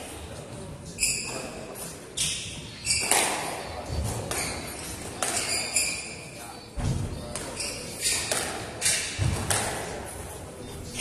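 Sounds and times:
shoes squeaking on wooden floor: 0.8s - 9.4s
squash ball hitting racquets and walls: 1.1s - 11.0s.

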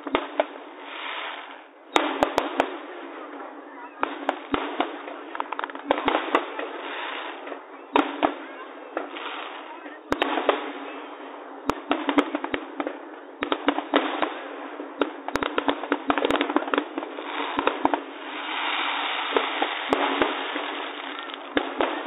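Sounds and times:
fireworks bursting: 0.0s - 22.0s
fireworks crackling: 0.0s - 22.0s.

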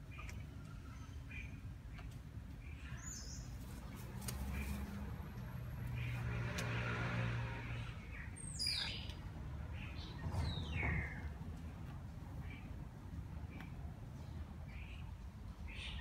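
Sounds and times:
vehicle engine passing: 3.7s - 11.7s
high bird chirp: 8.2s - 9.2s.

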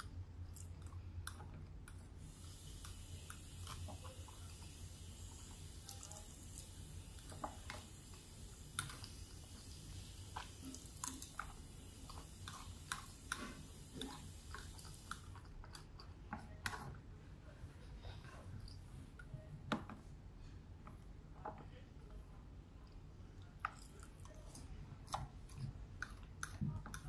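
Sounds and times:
faint chewing: 0.0s - 17.1s, 22.8s - 27.0s.

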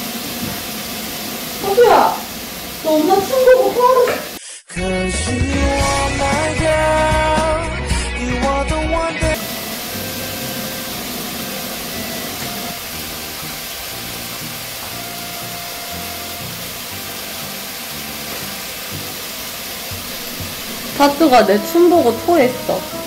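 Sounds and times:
steady hiss: 0.0s - 4.5s, 9.4s - 23.0s.

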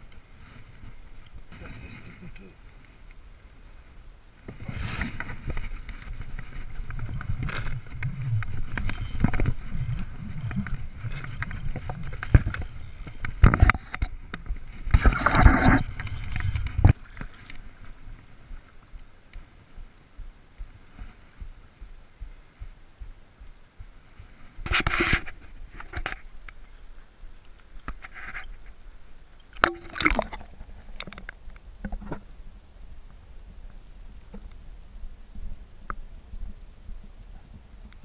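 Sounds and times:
water splashing and sloshing: 4.4s - 19.8s, 29.4s - 32.2s.

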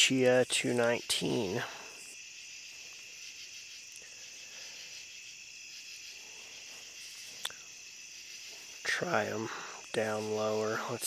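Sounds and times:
night insects chorus: 0.0s - 11.0s.

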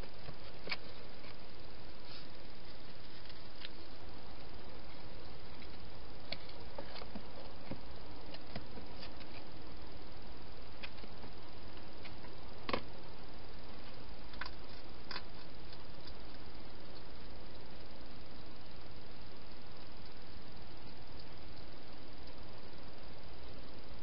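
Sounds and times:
steady hiss: 0.0s - 24.0s
hedgehog eating dry food: 13.8s - 17.7s.

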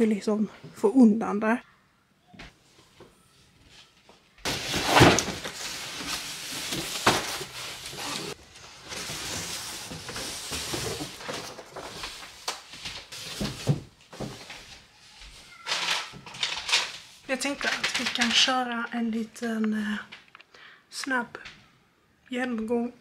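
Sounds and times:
cardboard rustling and scraping: 4.4s - 14.9s.

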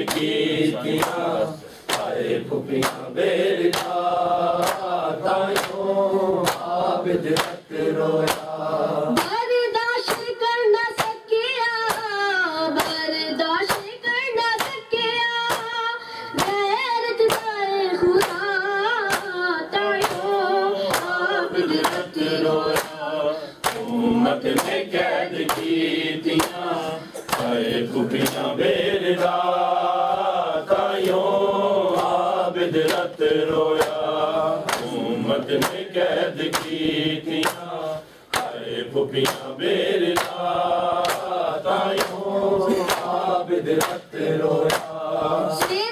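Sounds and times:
men chanting in unison: 0.0s - 9.2s, 19.7s - 45.9s
hands slapping bare chests: 0.0s - 9.4s, 10.0s - 11.2s, 11.8s - 12.2s, 14.6s - 14.8s, 15.5s - 15.7s, 16.4s - 16.6s, 17.2s - 18.5s, 19.1s - 19.4s, 20.0s - 20.3s, 20.9s - 21.2s, 21.8s - 45.9s.

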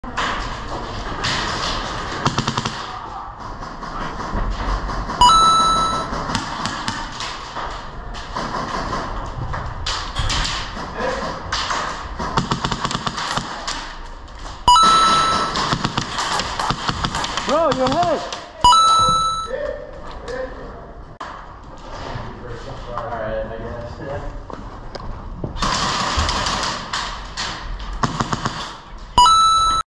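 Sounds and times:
loud ringing tone: 5.2s - 6.1s, 14.7s - 15.7s, 18.6s - 19.6s, 29.2s - 29.9s.

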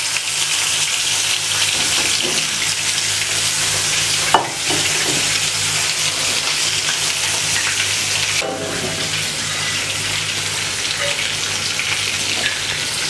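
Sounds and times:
oil sizzling in a pan: 0.0s - 13.0s.

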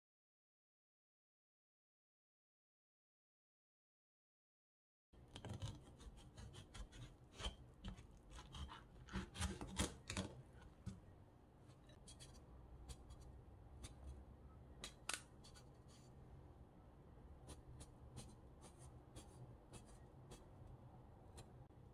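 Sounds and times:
knife scraping rind: 5.4s - 10.2s
knife crunching through melon: 6.4s - 10.3s.

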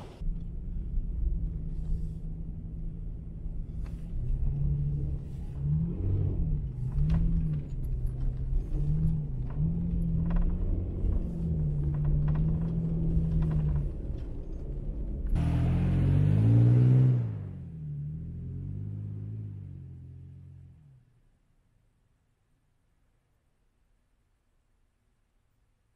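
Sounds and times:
pickup engine revving: 15.3s - 20.8s
truck passing by: 15.3s - 20.9s.

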